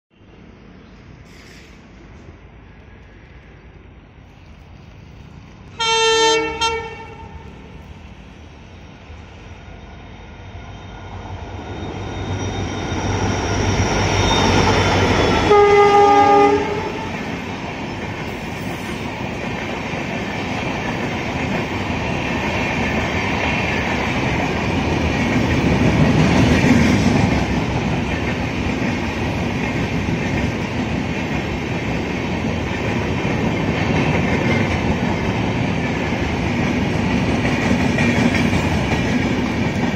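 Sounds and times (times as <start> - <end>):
train horn blasts: 5.8 - 7.4, 15.3 - 17.1
train wheels rushing and clattering: 10.9 - 39.9.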